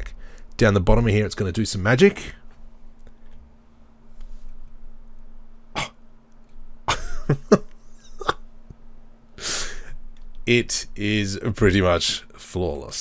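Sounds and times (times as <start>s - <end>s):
man clearing throat: 5.7s - 6.0s, 8.0s - 8.4s
man coughing: 5.8s - 6.0s, 6.9s - 8.5s.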